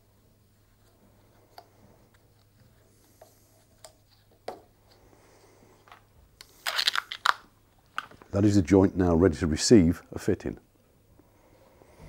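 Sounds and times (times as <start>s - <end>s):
brief tape rustle: 5.9s - 8.3s
tape handling clicks: 5.9s - 8.3s.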